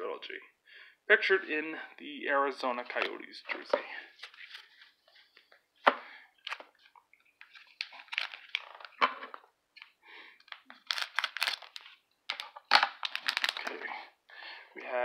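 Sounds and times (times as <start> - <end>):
plastic wrapping crinkling: 6.4 - 9.4, 10.4 - 13.9.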